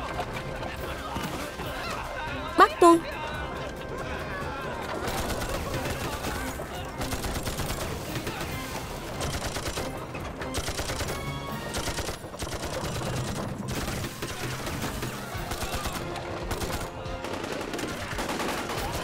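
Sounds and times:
rapid machine gun and rifle fire: 4.8 - 19.0.

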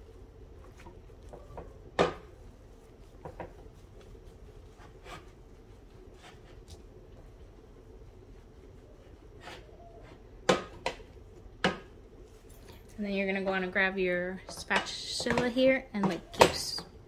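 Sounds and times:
potato masher knocking against pot: 14.4 - 16.9.

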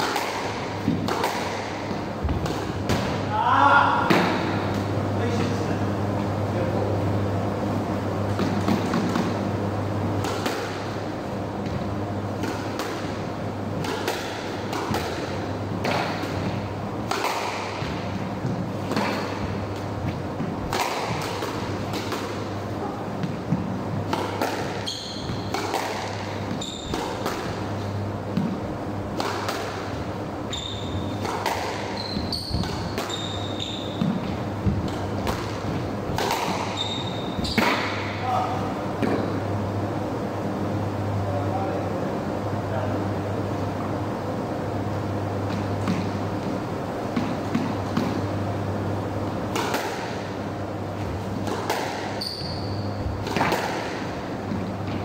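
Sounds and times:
squash ball hitting rackets and walls: 0.0 - 5.6, 8.3 - 39.7, 45.0 - 55.0
steady low hum: 0.0 - 55.0
shoe squeaks on wooden floor: 24.8 - 25.5, 26.5 - 27.0, 30.5 - 31.2, 31.8 - 34.3, 36.6 - 37.8, 52.2 - 53.1.

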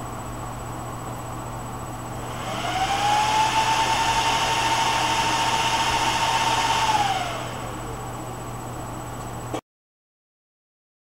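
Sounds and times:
cooling fans whining: 0.0 - 9.6.

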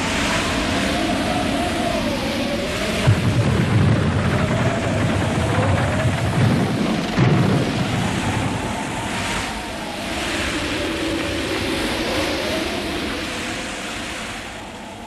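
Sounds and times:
cartoon whirlwind howling: 0.0 - 15.0
thud: 3.0 - 8.5.

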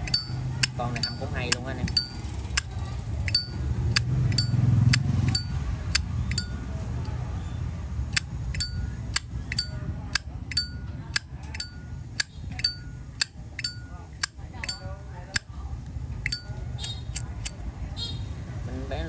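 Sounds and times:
lighter lid clinking open and shut: 0.0 - 2.7, 3.3 - 6.5, 8.1 - 14.8.

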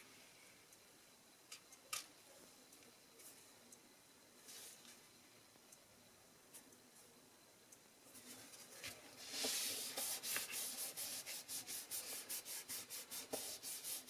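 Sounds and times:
hand rubbing paper card: 9.2 - 14.0.

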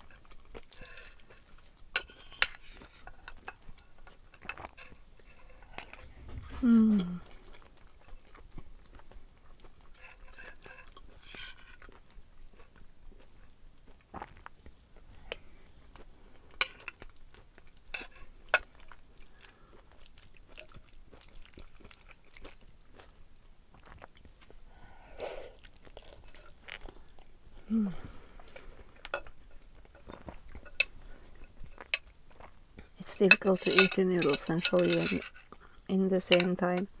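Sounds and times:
chewing noodles: 0.0 - 6.3, 7.2 - 33.0
cutlery clinking on ceramic bowl: 2.0 - 5.0, 33.2 - 35.4, 36.3 - 36.9.

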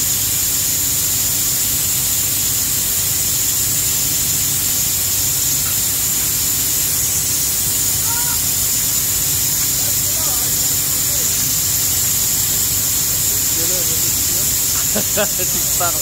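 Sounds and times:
machinery hissing loudly: 0.0 - 16.0
low machinery hum: 5.4 - 16.0.

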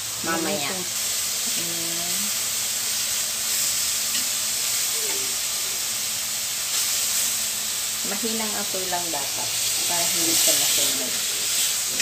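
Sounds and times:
meat sizzling in a wok: 0.0 - 12.0
low hum of a voice: 1.5 - 2.3.

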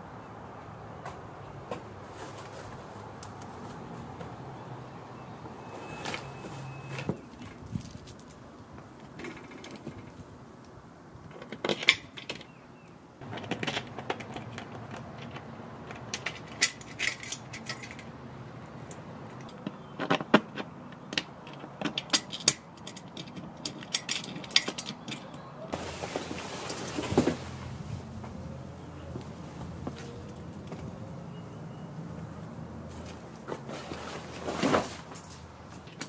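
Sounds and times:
metal hardware clinking and rattling: 13.2 - 18.1, 21.4 - 25.4.

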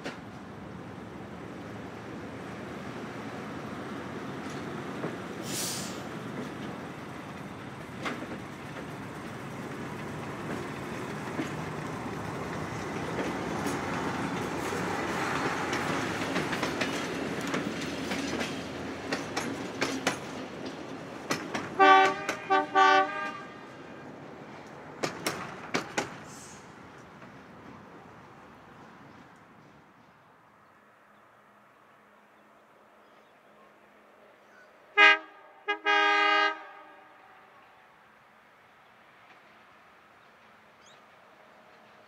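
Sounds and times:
railcar running gear rumble: 0.0 - 34.6, 38.5 - 42.0
wheels clicking over rail joints: 6.1 - 22.5, 24.6 - 27.8
train horn blasts: 21.8 - 23.7, 34.9 - 37.7.

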